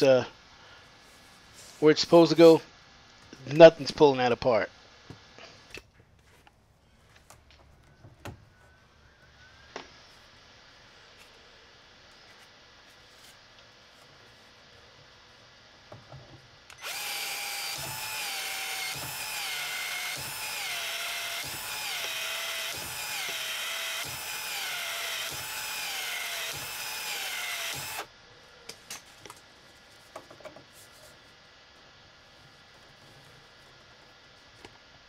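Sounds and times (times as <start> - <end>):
expansion tool motor strokes: 16.7 - 28.1.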